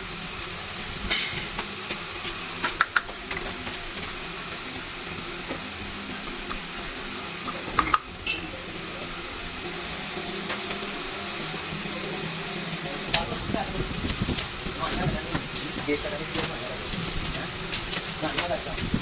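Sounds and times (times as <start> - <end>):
steady background noise: 0.0 - 19.0.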